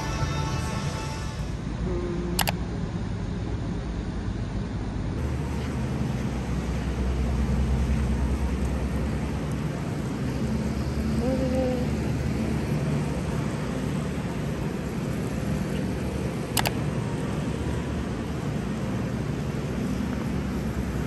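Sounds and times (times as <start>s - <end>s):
low hum: 0.0s - 21.0s
sharp click: 16.6s - 16.8s.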